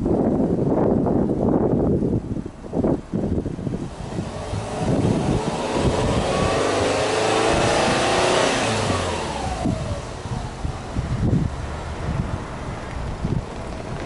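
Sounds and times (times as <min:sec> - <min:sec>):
wind buffeting microphone: 0:00.0 - 0:14.0
car engine revving: 0:03.7 - 0:12.6.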